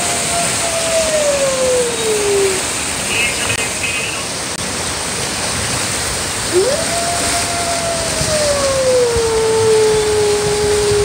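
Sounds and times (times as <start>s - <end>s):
recorded wolf howl: 0.0s - 2.8s, 6.5s - 11.0s
rushing whitewater: 0.0s - 11.0s.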